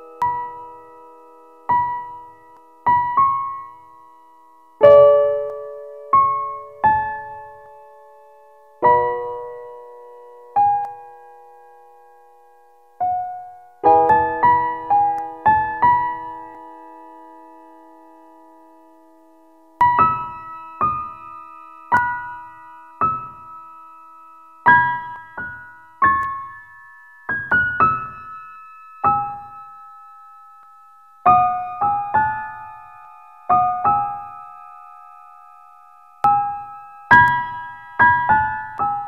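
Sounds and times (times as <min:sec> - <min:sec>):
slow piano melody: 0:00.0 - 0:39.0.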